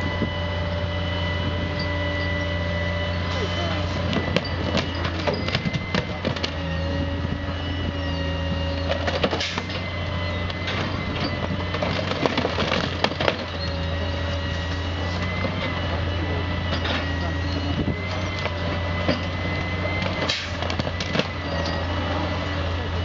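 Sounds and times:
loader whine: 0:00.0 - 0:23.0
truck engine running: 0:00.0 - 0:23.0
grapple crunching and clanking debris: 0:03.9 - 0:06.6, 0:10.5 - 0:13.8, 0:18.0 - 0:21.9.

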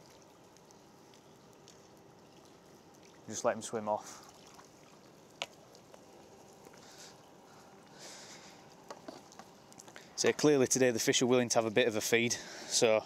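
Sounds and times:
water dripping and trickling: 0:00.0 - 0:10.4.

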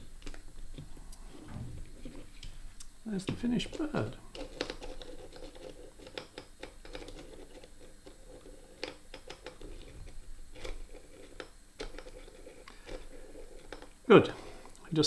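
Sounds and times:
clicks and scratches of small parts: 0:03.3 - 0:13.9.

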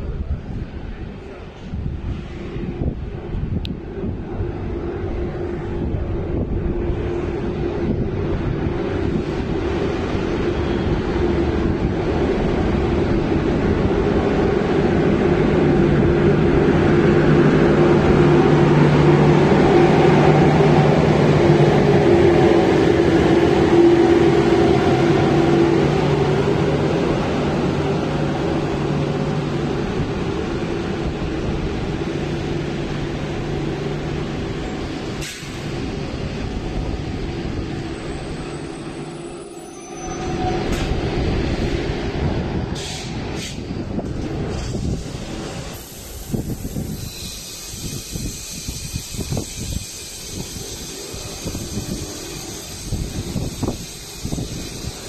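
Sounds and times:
electric locomotive humming: 0:00.0 - 0:55.0
train coaches rumbling on rails: 0:00.0 - 0:55.0
wheel squeals: 0:38.0 - 0:40.9, 0:45.8 - 0:55.0.

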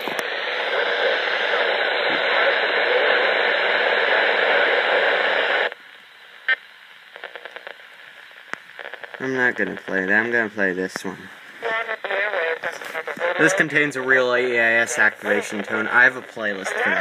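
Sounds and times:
radio static hiss: 0:00.0 - 0:17.0
faint clicks: 0:07.2 - 0:09.2.

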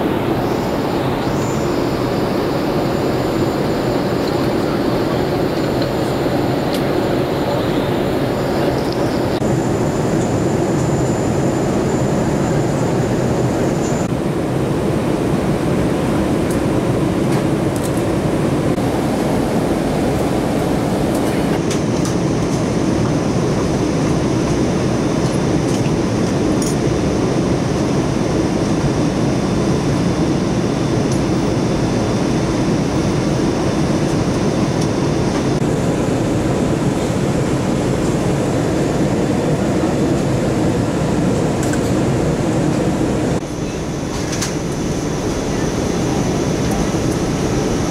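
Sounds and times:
faint high whine: 0:00.0 - 0:15.4
jet engines and rushing airflow: 0:00.0 - 0:47.9.

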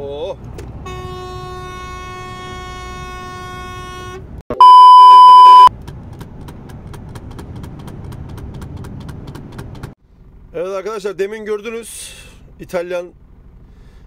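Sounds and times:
censor bleep: 0:04.6 - 0:05.7.

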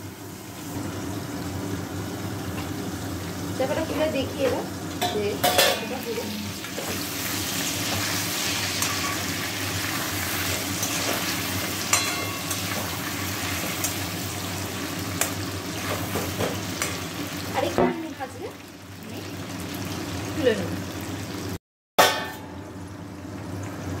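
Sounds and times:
potatoes sizzling in hot oil: 0:00.0 - 0:21.6
spatula scraping a pan: 0:06.8 - 0:14.0.

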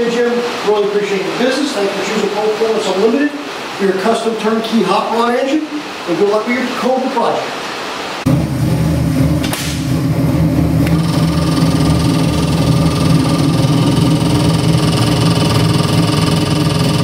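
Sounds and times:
car engine idling: 0:08.3 - 0:17.0.

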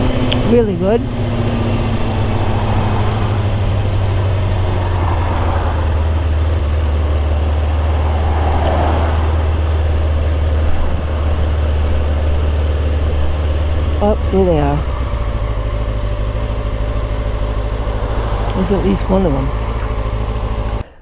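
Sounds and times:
motorcycle engine running: 0:00.0 - 0:20.9
wind rushing over microphone: 0:01.0 - 0:12.5.

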